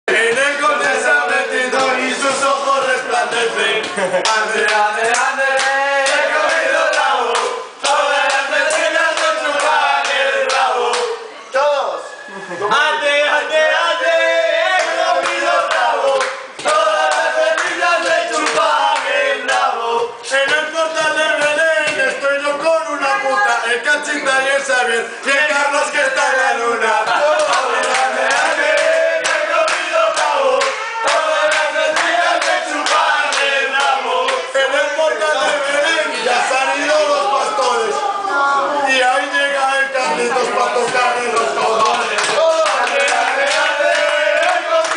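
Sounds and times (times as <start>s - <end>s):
men singing together: 0.1s - 11.2s, 12.6s - 38.1s, 38.7s - 44.9s
hand claps: 3.3s - 11.2s, 14.8s - 19.7s, 20.4s - 22.3s, 27.3s - 34.5s, 40.8s - 44.9s.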